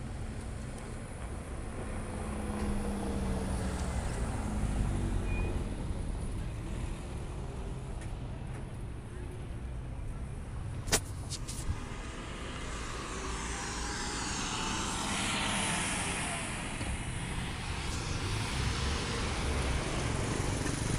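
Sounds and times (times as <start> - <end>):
vehicle passing: 11.4 - 20.9.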